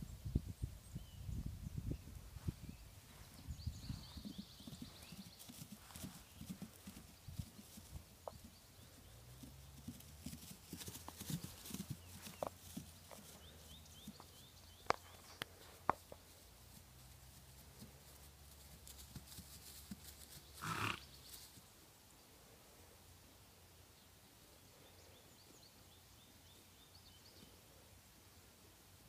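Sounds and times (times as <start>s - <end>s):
hooves thudding on grass: 2.2s - 21.7s.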